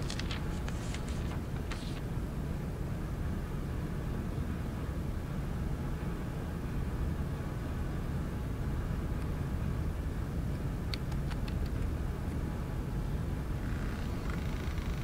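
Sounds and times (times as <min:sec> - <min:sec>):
low rumbling ambience: 0:00.0 - 0:15.0
small sharp clicks: 0:10.9 - 0:11.9.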